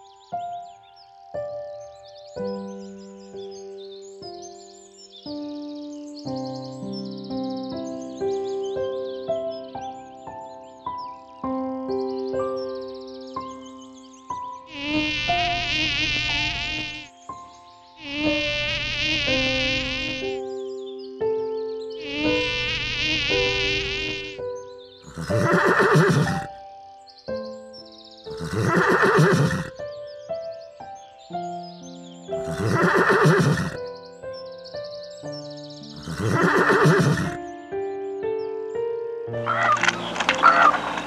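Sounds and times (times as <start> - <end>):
soft background music: 0.0 - 41.0
mosquito buzzing: 14.7 - 17.1, 18.0 - 20.4, 22.0 - 24.4, 25.0 - 26.5, 28.3 - 29.7, 32.4 - 33.8, 36.0 - 37.4
zebra whinnies: 18.0 - 20.4, 22.0 - 24.4, 25.0 - 26.5, 28.4 - 29.7, 32.4 - 33.8, 36.0 - 37.4, 39.4 - 41.0.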